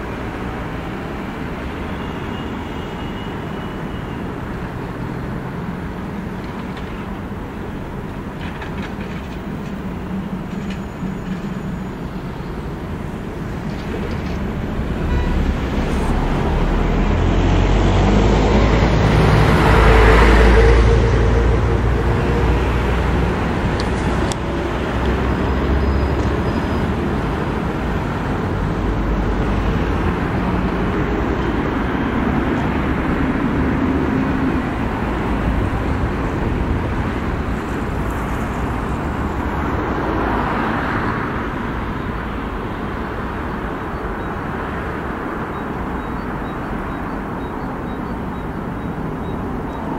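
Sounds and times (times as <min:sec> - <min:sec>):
road traffic passing: 0:00.0 - 0:49.9
deep engine rumble: 0:07.9 - 0:39.7.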